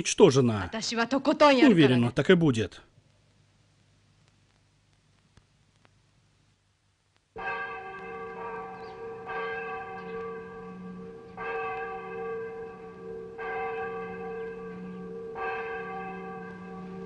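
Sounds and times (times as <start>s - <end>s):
church bell tolling: 7.4s - 17.0s.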